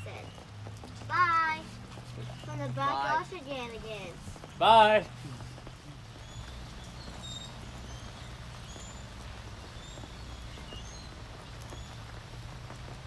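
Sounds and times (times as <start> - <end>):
campfire crackling: 0.0 - 13.0
low fire rumble: 0.0 - 13.0.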